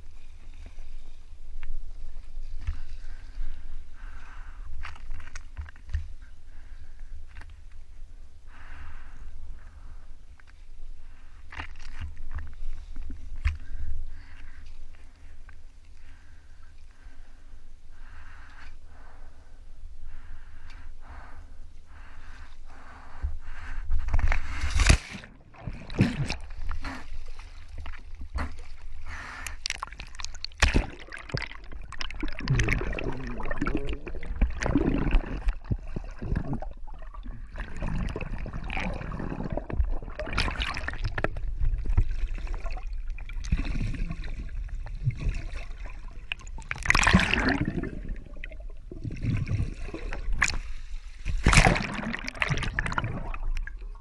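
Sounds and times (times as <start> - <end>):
seawater sloshing and gurgling: 23.9 - 54.0
loud water splashes: 29.7 - 35.6, 51.4 - 53.4.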